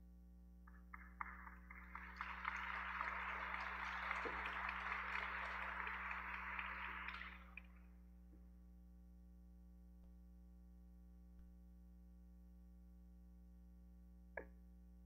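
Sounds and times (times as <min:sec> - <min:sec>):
congregation applauding: 0:00.7 - 0:07.8.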